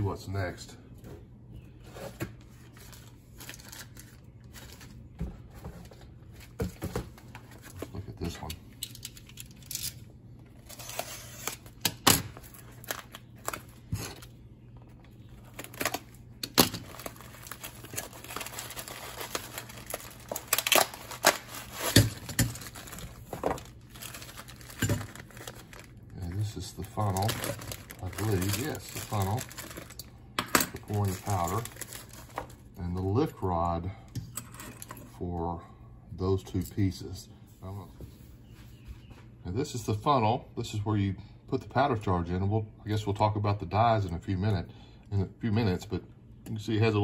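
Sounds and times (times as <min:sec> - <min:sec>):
plastic packaging crinkling: 0:02.6 - 0:05.1, 0:08.9 - 0:14.4, 0:15.2 - 0:30.1, 0:30.7 - 0:32.7.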